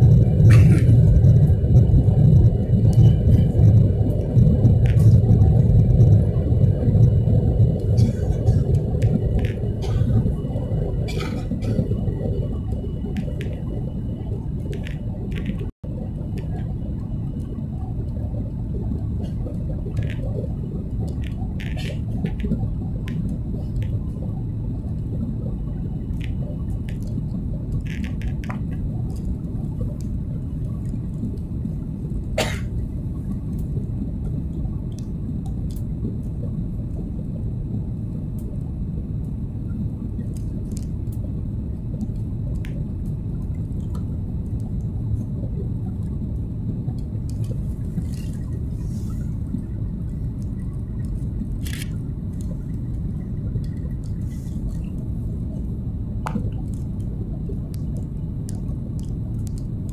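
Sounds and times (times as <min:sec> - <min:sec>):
airplane cabin rumble: 0:00.0 - 0:59.9
faint clicks: 0:57.7 - 0:59.9.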